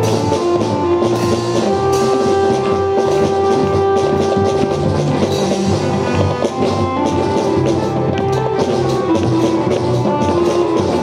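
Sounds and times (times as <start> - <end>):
drums beating: 0.0 - 11.0.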